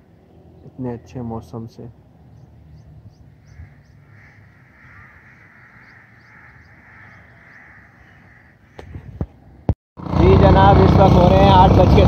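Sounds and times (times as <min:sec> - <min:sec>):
distant crows cawing: 0:02.0 - 0:09.8.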